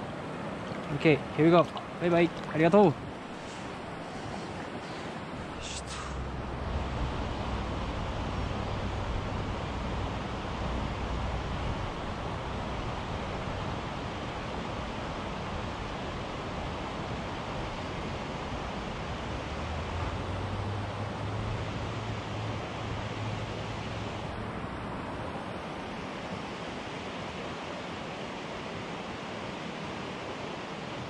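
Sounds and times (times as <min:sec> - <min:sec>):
wind rumble on microphone: 0:00.0 - 0:27.6
flowing river water: 0:00.0 - 0:31.0.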